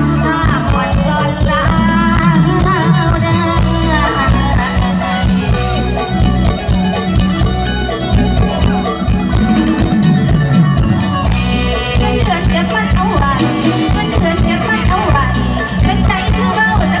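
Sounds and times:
woman singing: 0.0 - 6.0, 11.7 - 17.0
live band over loudspeakers: 0.0 - 17.0.

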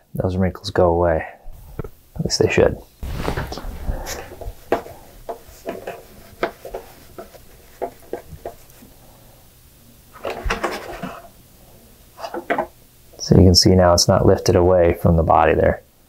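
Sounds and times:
rubbing and handling: 3.0 - 9.2, 10.1 - 11.4.

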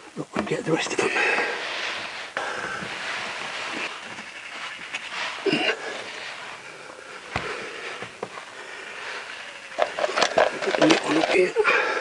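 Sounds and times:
man breathing: 1.0 - 4.0, 5.1 - 9.8, 11.6 - 12.0.

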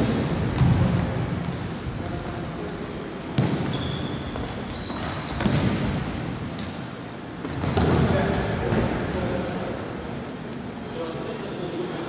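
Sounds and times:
high squeaks: 3.6 - 5.5.

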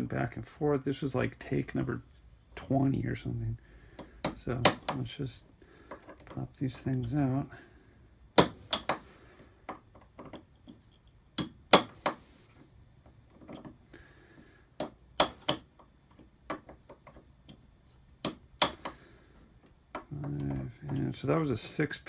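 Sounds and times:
hammer tapping metal punch: 4.0 - 5.1, 8.4 - 9.1, 11.3 - 12.3, 14.8 - 15.8, 18.2 - 19.0.

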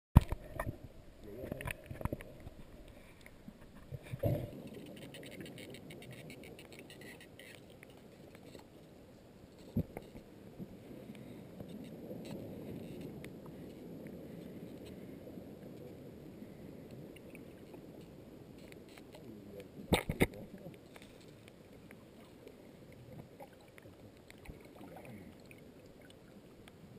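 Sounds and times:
fine crackling clicks: 0.2 - 10.3, 16.9 - 22.6
muffled underwater water wash: 0.2 - 26.9.

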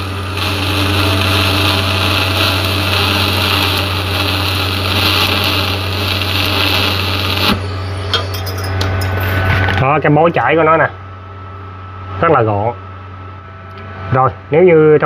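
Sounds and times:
welding arc hissing: 0.0 - 9.8
low electrical hum: 0.0 - 15.0.

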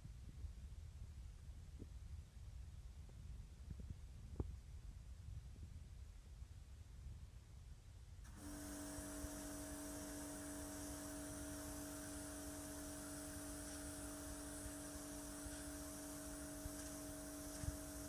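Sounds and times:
pressure washer motor hum: 8.3 - 18.0
water jet hissing on paving: 8.3 - 18.0.

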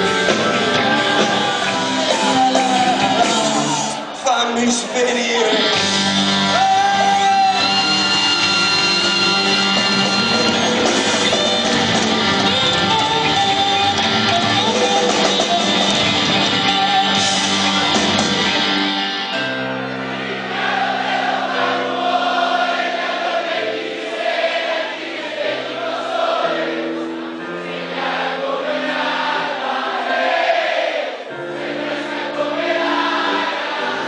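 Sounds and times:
live rock band playing: 0.0 - 22.7
crowd singing together: 0.0 - 34.0.

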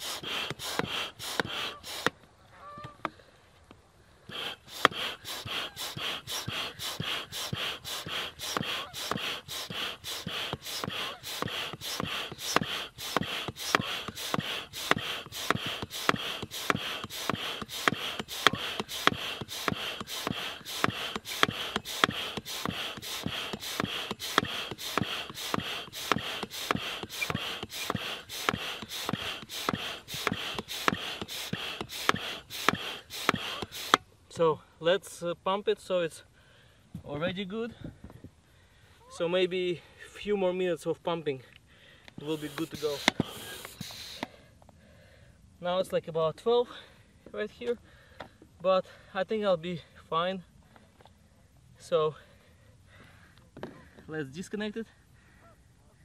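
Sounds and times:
hand pump hissing air strokes: 0.0 - 2.2, 4.2 - 34.1, 42.2 - 44.4.

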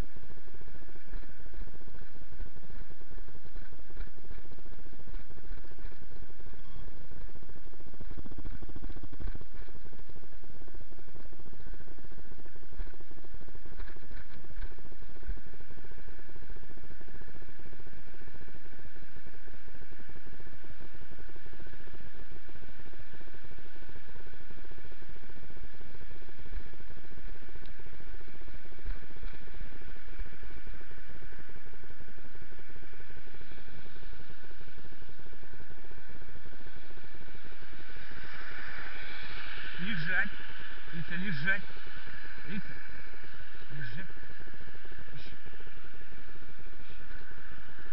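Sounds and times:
faint electronic whine: 0.0 - 47.9
low rumble and rubbing: 0.0 - 47.9
soft crackles: 0.0 - 47.9
microphone rushing noise: 21.6 - 47.9.

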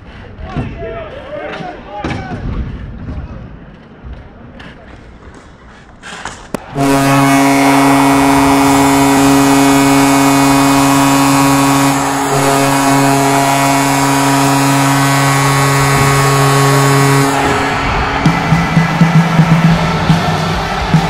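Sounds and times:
goal horn blast: 6.6 - 21.0.

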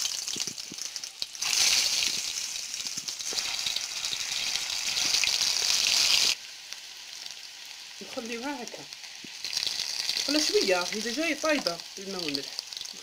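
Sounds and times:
potatoes sizzling in hot oil: 0.0 - 13.0.

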